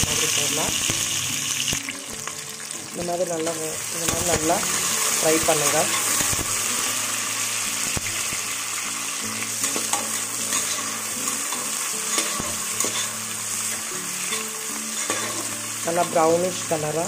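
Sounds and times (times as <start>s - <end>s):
onions sizzling in hot oil: 0.0s - 17.0s
ladle scraping pan: 9.6s - 16.2s.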